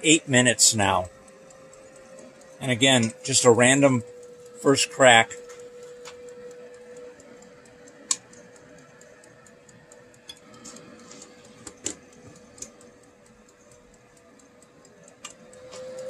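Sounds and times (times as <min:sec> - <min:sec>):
roaster fan and motor hum: 0:00.0 - 0:16.0.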